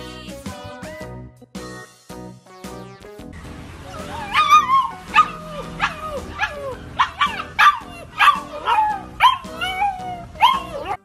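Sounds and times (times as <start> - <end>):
music: 0.0 - 11.0
puppy yipping and whining: 3.9 - 11.0.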